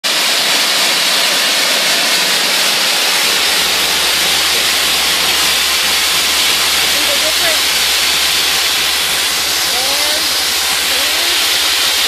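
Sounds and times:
blasting nozzle loud hiss: 0.3s - 12.0s
low steady hum: 3.0s - 12.0s.

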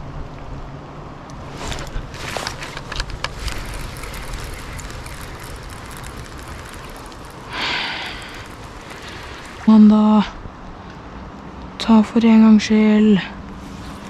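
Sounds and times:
river noise: 1.1s - 11.8s, 13.4s - 14.0s
wind on microphone: 1.4s - 10.9s
fishing reel clicks: 2.4s - 10.2s
rush of hiss: 7.2s - 9.8s.

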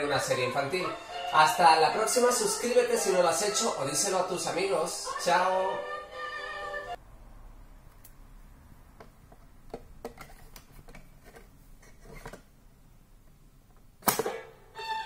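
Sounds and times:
sharp loud click: 14.0s - 14.5s.

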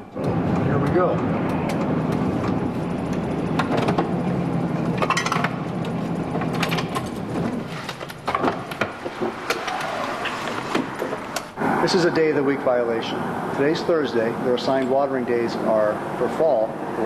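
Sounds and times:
vehicle engine running: 0.0s - 9.5s
road rumble: 0.0s - 17.0s.

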